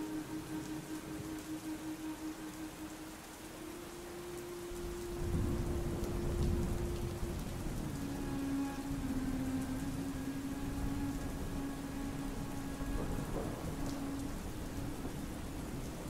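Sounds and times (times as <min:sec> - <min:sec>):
steady rain: 0:00.0 - 0:16.0
low thunder rumble: 0:05.1 - 0:08.0, 0:08.8 - 0:16.0.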